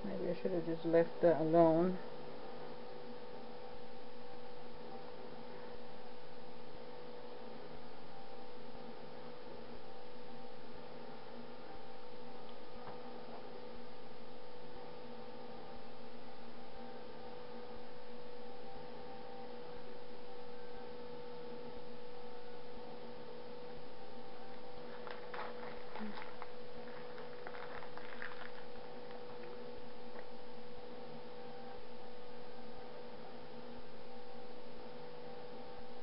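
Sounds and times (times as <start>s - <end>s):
electrical hum: 0.0s - 36.0s.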